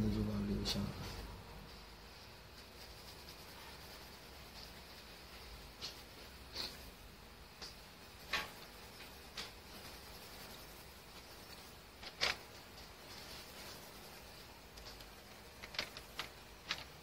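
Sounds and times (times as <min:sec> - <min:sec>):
pencil scratching on paper: 0:02.6 - 0:06.9.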